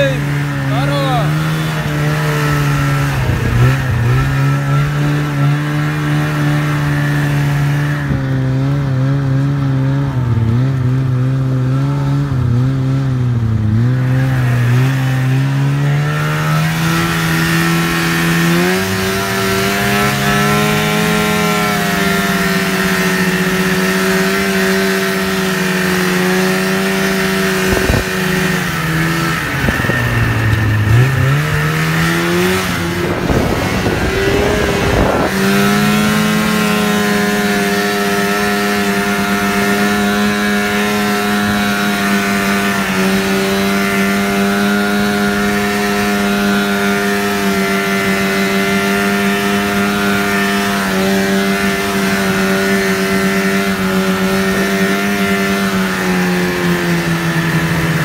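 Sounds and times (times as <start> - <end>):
snowmobile engine running: 0.0 - 58.0.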